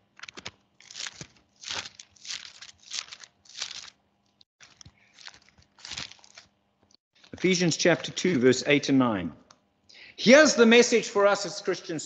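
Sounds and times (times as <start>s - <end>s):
paper pages turning and rustling: 0.0s - 4.0s, 4.6s - 6.5s.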